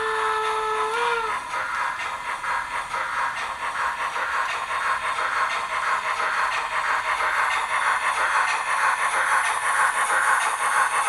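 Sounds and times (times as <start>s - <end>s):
steam locomotive whistle: 0.0s - 1.4s
model train running: 0.0s - 11.0s.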